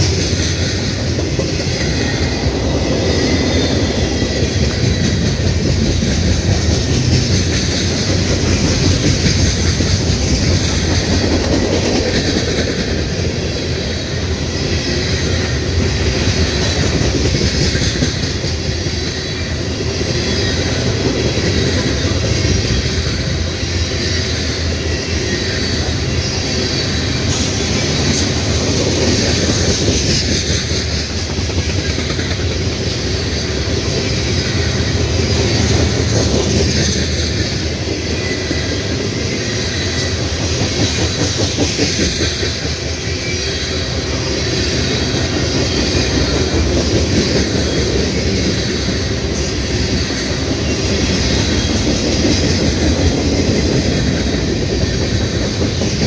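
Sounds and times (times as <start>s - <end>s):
freight train wheels rumbling: 0.0s - 56.0s.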